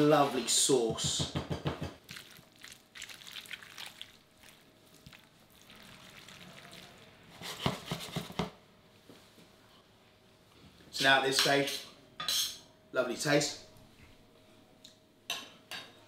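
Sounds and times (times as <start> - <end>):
wet sticky stirring: 2.0 - 8.4.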